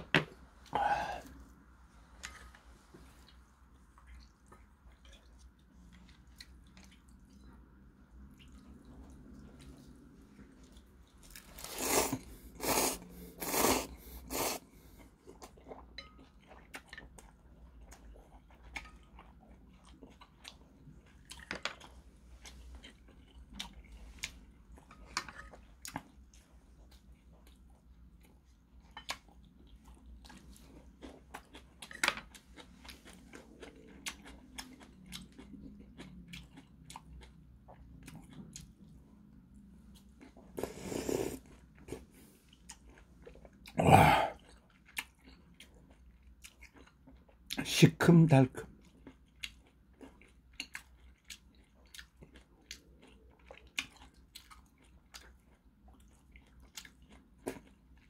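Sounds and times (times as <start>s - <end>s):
chewing: 2.2s - 47.6s, 48.8s - 58.0s
loud noodle slurps: 11.6s - 14.6s, 40.6s - 41.4s.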